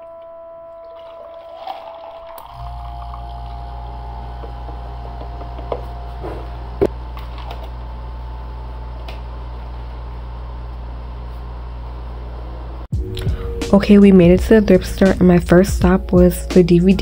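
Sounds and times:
steady low hum: 0.0s - 16.6s
straw stirring in plastic tumbler: 0.9s - 3.7s.

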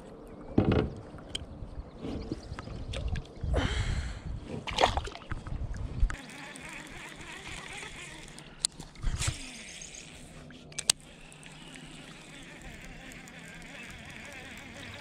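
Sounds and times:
knocks and rustles in kayak: 0.6s - 1.0s.

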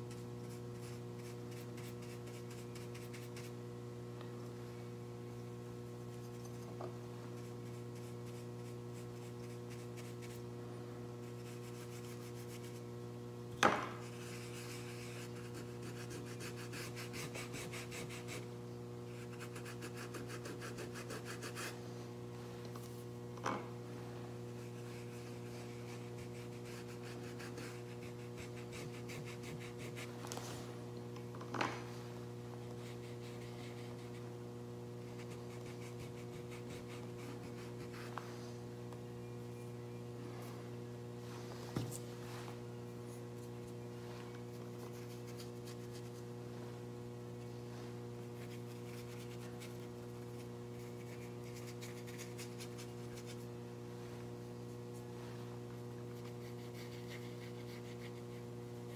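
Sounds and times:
electrical hum: 0.0s - 58.9s
paintbrush rubbing on paper: 0.1s - 3.5s, 14.0s - 18.5s, 24.5s - 30.6s, 35.1s - 38.2s, 47.6s - 53.5s, 56.1s - 58.5s.

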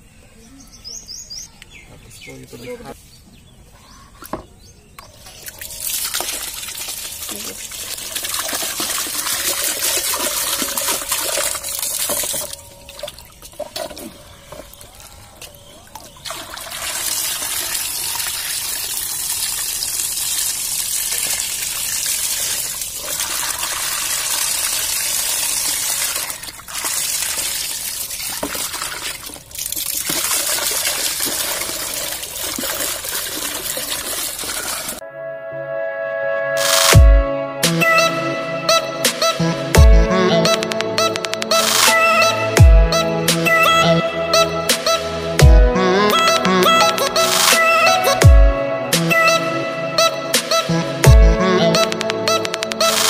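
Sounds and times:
water splashing in a plastic tub: 5.2s - 35.0s.

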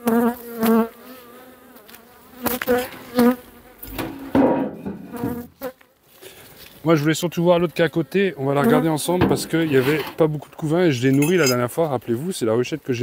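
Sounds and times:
bees buzzing past: 0.0s - 5.8s
sharp knocks: 3.9s - 5.5s.

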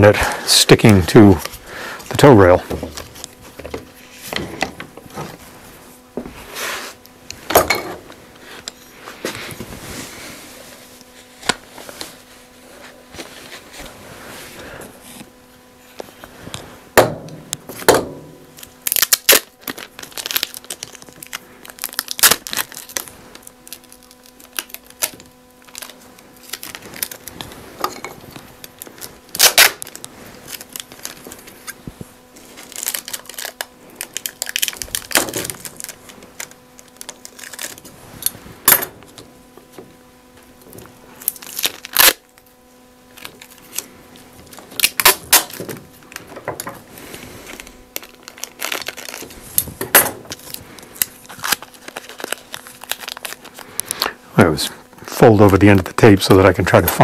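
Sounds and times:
packing tape pulled off roll: 17.5s - 39.8s, 40.4s - 54.2s.

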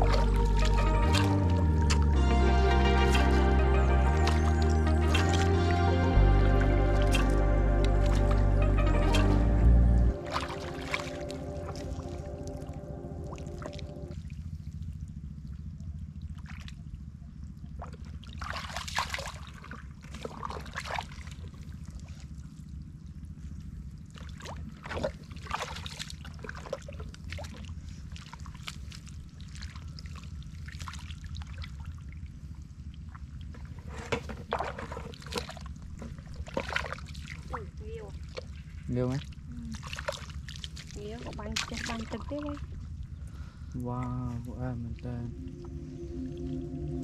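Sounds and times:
boots squelching through mud: 0.0s - 2.2s, 3.0s - 12.0s
low rumble: 0.0s - 18.4s, 35.5s - 47.0s.

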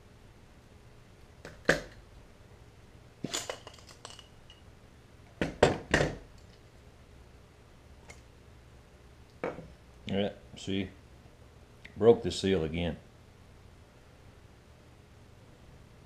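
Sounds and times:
tool knocking on wooden bench: 5.4s - 6.2s, 9.4s - 9.7s.

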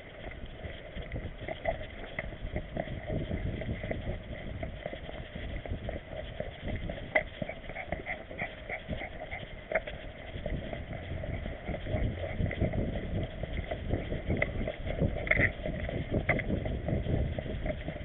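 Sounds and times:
camera rubbing rumble: 0.0s - 18.0s.

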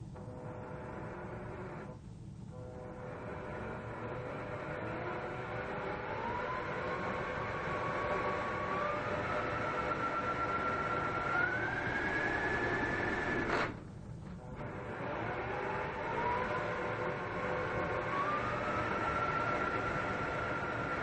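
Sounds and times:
cordless drill motor whine: 0.2s - 21.0s.

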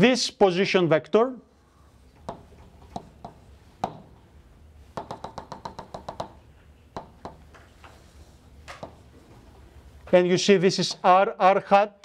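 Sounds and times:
chalk tapping on blackboard: 2.2s - 4.1s, 4.9s - 6.4s, 7.0s - 9.1s.

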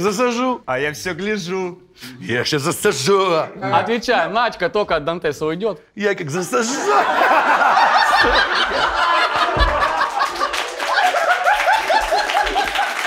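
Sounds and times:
men laughing: 6.6s - 13.0s.

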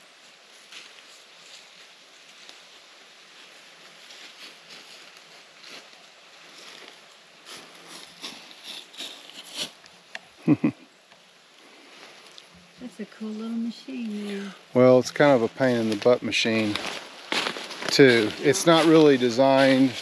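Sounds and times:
footsteps in dry leaves: 0.3s - 10.0s, 14.1s - 20.0s.

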